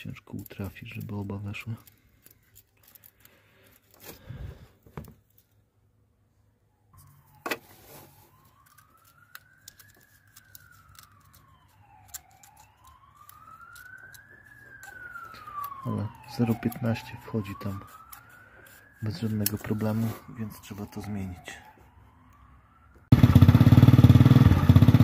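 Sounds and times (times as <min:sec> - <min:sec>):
siren wailing: 0:06.6 - 0:24.9.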